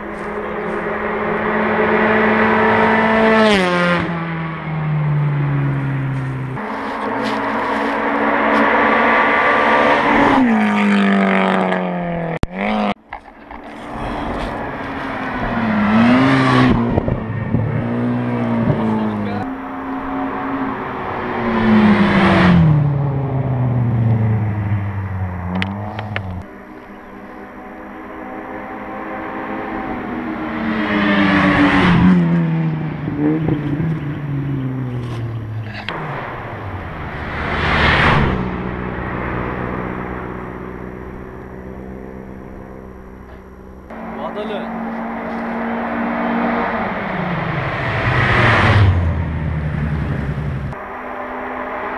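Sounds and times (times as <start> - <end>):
rally cars passing at speed: 0.0 - 51.9
exhaust cracks: 32.3 - 45.9.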